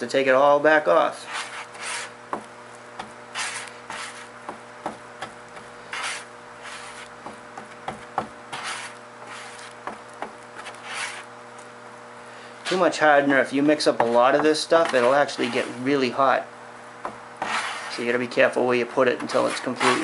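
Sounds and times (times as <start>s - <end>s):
plastic spreader rasping filler: 3.3s - 4.3s, 5.9s - 7.1s, 8.5s - 9.8s, 10.6s - 11.3s, 14.0s - 15.9s, 17.4s - 18.0s, 19.2s - 20.0s.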